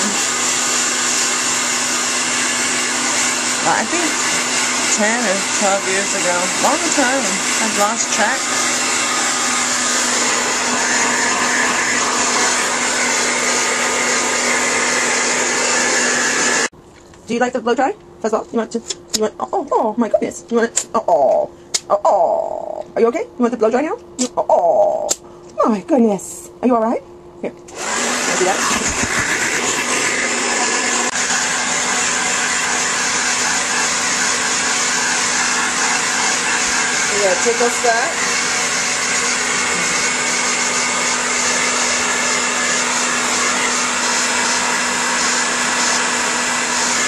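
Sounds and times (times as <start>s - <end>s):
hair dryer running: 0.0s - 16.7s, 27.7s - 47.0s.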